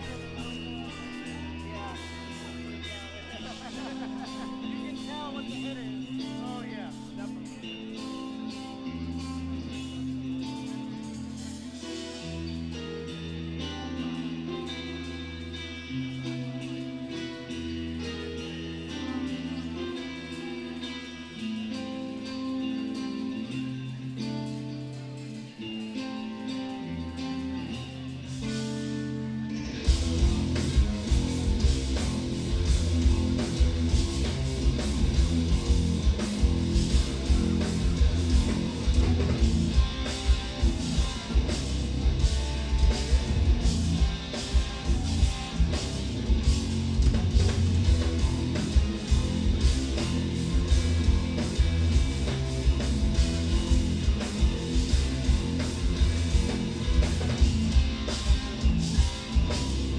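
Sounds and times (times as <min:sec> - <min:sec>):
clean electric guitars: 0:00.0 - 0:59.9
heavy metal band playing: 0:00.0 - 0:59.9
fast dense drumming: 0:29.9 - 0:59.9.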